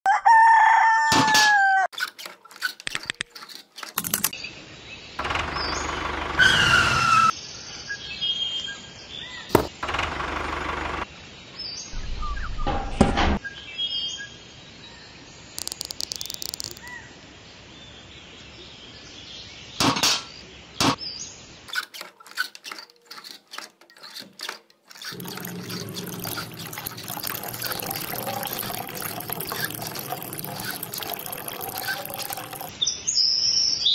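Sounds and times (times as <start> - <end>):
toy pump clicks and knocks: 15.6 - 16.9
water pouring into metal bucket: 15.6 - 16.9, 25.1 - 32.7.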